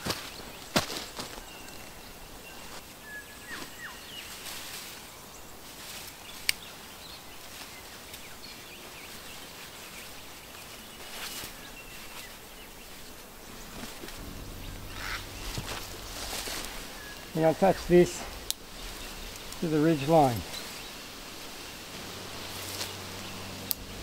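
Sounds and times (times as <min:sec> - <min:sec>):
steady high hiss: 0:00.0 - 0:24.0
soft rustles: 0:09.0 - 0:24.0
thin high bird calls: 0:10.0 - 0:24.0.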